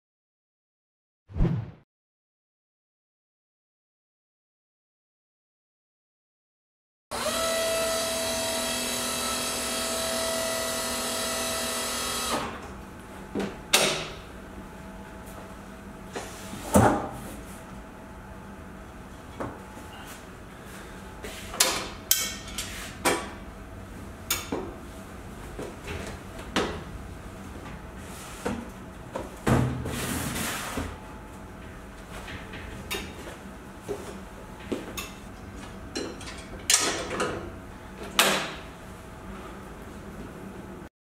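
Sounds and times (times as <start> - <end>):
boxes set on steel shelving: 19.8 - 23.1, 27.3 - 34.6.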